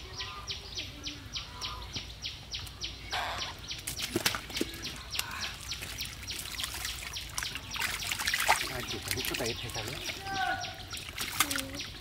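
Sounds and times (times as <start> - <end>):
muddy water splashing: 2.6 - 12.0.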